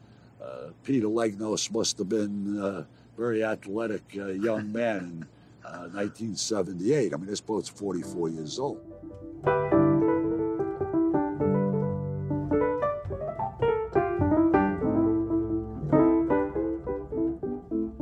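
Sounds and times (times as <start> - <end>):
piano background music: 8.0 - 18.0.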